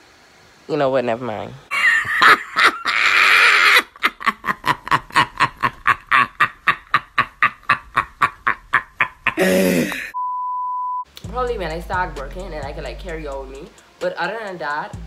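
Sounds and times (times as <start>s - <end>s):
woman cackling laughter: 1.7s - 10.2s
woman screaming: 2.8s - 3.9s.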